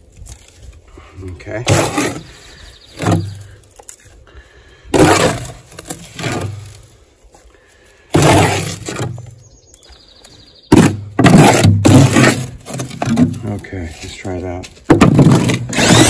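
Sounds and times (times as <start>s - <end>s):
scoop scraping sand: 8.2s - 9.2s, 11.2s - 13.1s.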